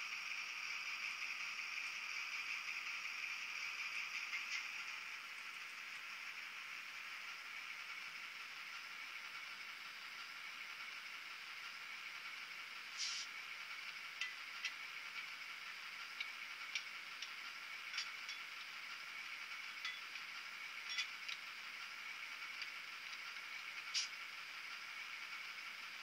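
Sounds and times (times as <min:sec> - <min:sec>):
thin steady hiss: 0:12.9 - 0:13.4, 0:23.6 - 0:24.4.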